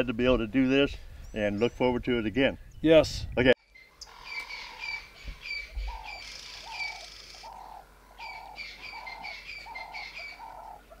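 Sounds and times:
birds chirping: 0.0 - 3.0, 3.6 - 11.0
low repeating animal call: 3.8 - 11.0.

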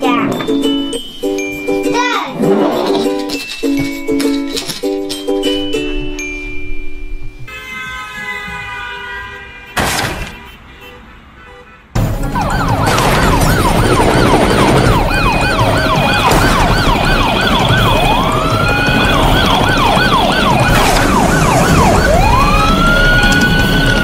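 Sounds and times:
toy police siren: 12.2 - 24.0.

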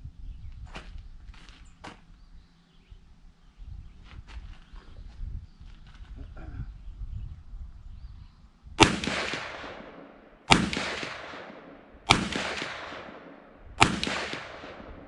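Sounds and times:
revolver shots echoing: 8.8 - 15.0.

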